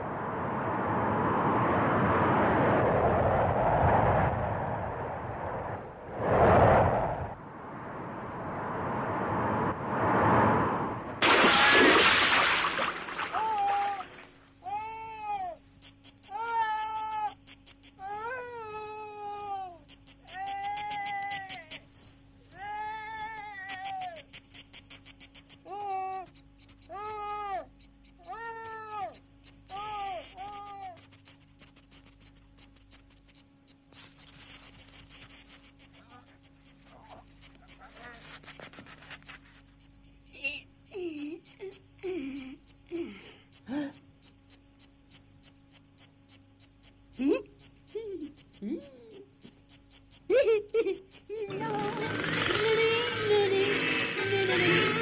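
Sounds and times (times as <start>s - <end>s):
rushing wind-like noise: 0.0s - 11.4s
cricket chirping: 11.2s - 55.0s
animal-like cries: 13.2s - 15.6s, 16.2s - 17.4s, 18.0s - 21.8s, 22.5s - 24.3s, 26.9s - 31.1s.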